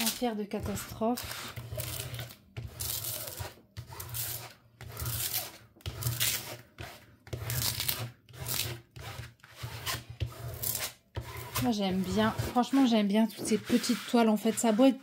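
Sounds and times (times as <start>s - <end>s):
scraper rubbing plastic film: 0.0s - 15.0s.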